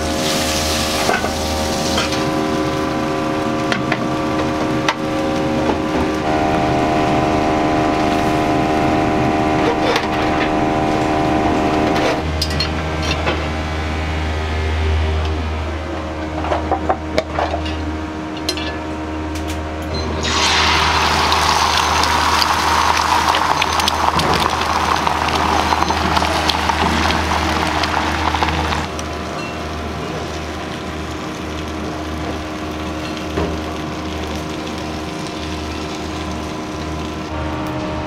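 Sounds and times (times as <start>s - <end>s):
egg sizzling on hot plate: 20.2s - 37.3s.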